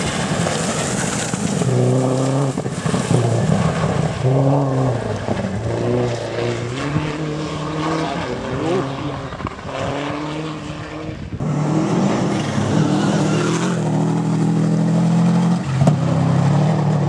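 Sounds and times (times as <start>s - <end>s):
tyres on gravel: 0.0s - 7.0s, 11.3s - 16.5s
rally car engine revving: 0.0s - 17.0s.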